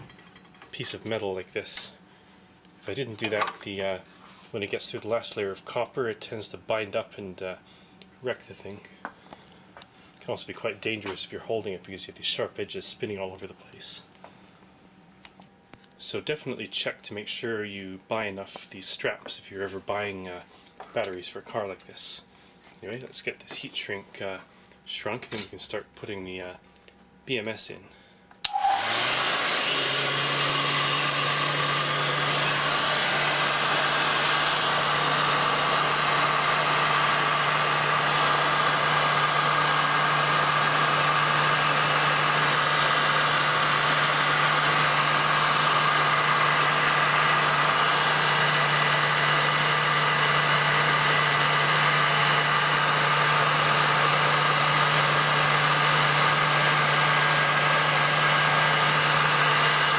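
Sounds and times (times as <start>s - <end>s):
heat gun blowing hot air: 28.5s - 59.9s.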